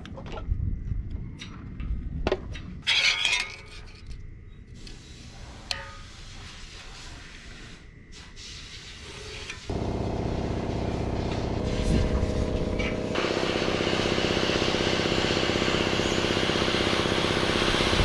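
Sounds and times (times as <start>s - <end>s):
metal tools scraping steel plate: 2.8s - 4.1s
engine starting and running: 9.7s - 18.0s.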